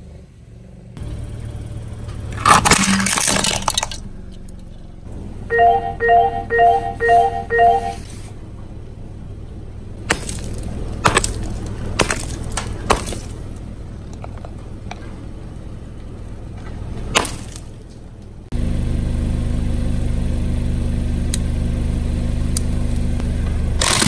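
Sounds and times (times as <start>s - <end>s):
car tyre crushing objects: 1.9s - 5.1s, 9.4s - 18.4s, 23.2s - 24.0s
short electronic beeps: 5.5s - 8.1s
hammer smashing balls on concrete: 10.1s - 13.4s, 17.2s - 17.8s.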